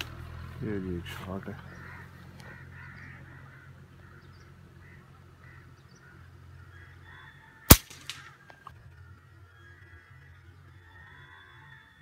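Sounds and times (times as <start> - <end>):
birds calling faintly: 0.0 - 12.0
air rifle firing: 7.7 - 8.3.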